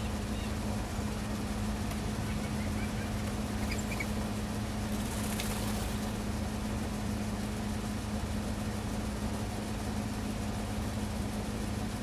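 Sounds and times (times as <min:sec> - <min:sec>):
low droning hum: 0:00.0 - 0:12.0
faint bird chirps: 0:02.2 - 0:04.1.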